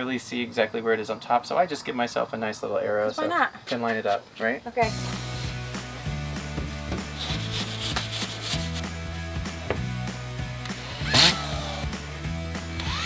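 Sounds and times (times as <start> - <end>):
background music with beat: 4.8 - 13.0
screw gun whine: 10.7 - 11.9, 12.8 - 13.0.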